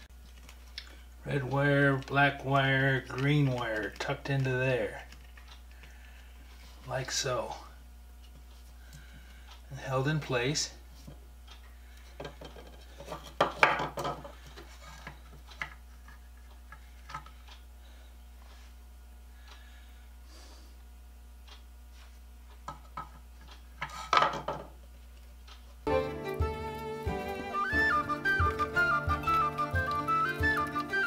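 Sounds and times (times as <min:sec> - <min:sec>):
faint steady low hum: 0:00.0 - 0:27.8
plastic clattering on workbench: 0:12.2 - 0:14.3, 0:24.1 - 0:24.7
plastic parts clicking and knocking: 0:12.2 - 0:17.4, 0:22.6 - 0:24.8.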